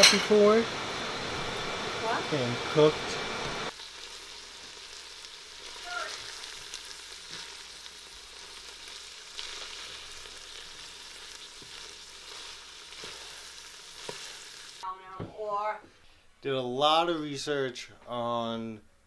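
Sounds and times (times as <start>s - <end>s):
meat sizzling in a pot: 0.0s - 14.9s.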